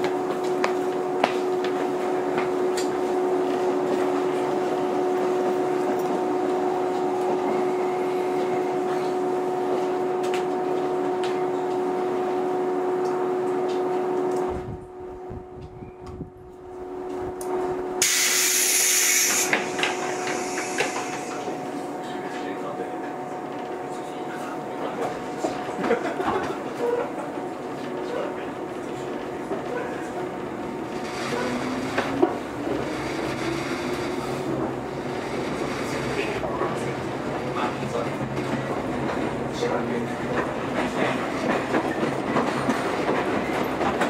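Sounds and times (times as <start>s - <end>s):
train electrical hum: 0.0s - 44.0s
compressed air hiss: 18.0s - 21.6s.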